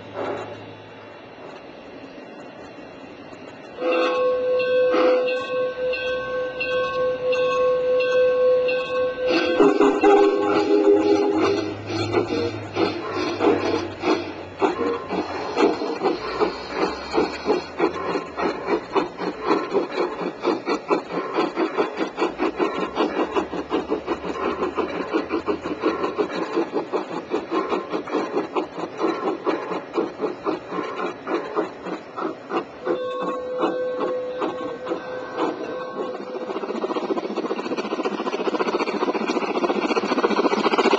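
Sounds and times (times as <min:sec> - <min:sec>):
model train wheels clicking on rails: 0:02.6 - 0:40.9
steady pitched tone: 0:09.3 - 0:14.0.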